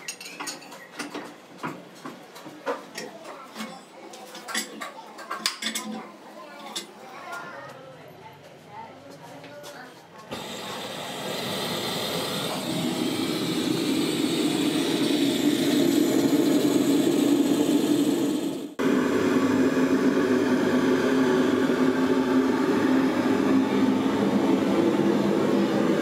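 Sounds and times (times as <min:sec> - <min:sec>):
burner flame rushing: 0:10.4 - 0:19.4.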